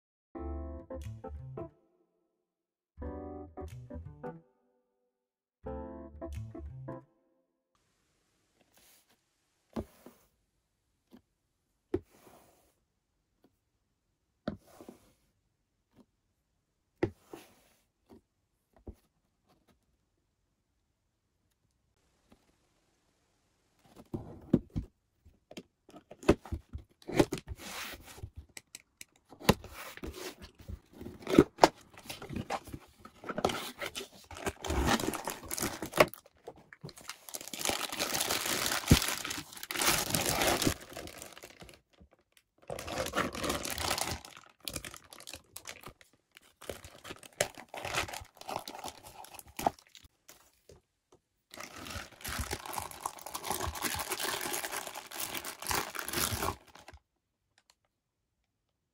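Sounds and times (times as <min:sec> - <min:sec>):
cardboard box being opened: 0:29.4 - 0:41.8, 0:42.7 - 0:45.9, 0:51.6 - 0:56.9
plastic bags crinkling and tearing: 0:33.2 - 0:50.1, 0:51.5 - 0:57.0.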